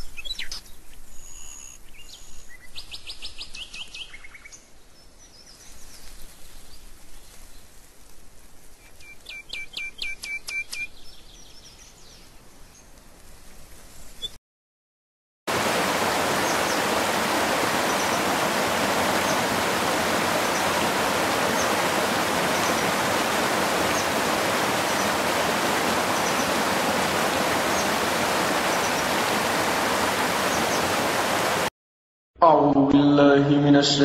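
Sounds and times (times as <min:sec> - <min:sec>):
rushing water: 0:15.5 - 0:31.7.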